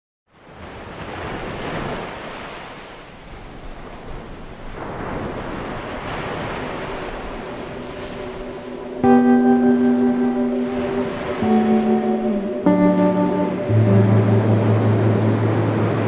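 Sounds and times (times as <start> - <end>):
ocean surf breaking: 3.7 - 16.0.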